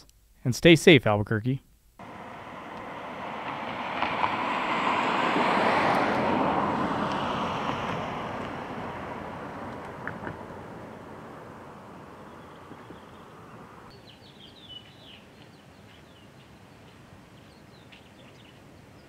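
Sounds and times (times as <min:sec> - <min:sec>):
vehicle passing by: 0:02.0 - 0:13.9.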